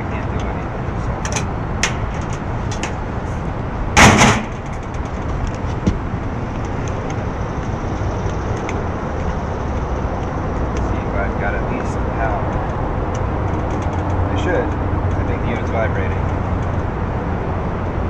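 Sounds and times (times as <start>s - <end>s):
steady mechanical rumble: 0.0s - 18.0s
handling clicks and knocks: 1.2s - 3.0s, 4.0s - 11.0s, 11.7s - 16.9s
loud clank: 4.0s - 4.8s.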